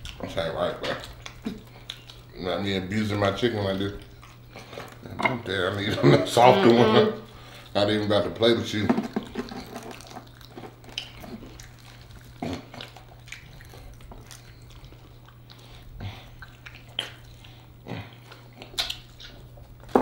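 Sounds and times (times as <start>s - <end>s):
wet lip smacks: 0.0s - 2.3s, 16.3s - 19.4s
chewing and sucking on bones: 0.0s - 6.0s, 7.2s - 19.9s
steady low hum: 0.0s - 20.0s.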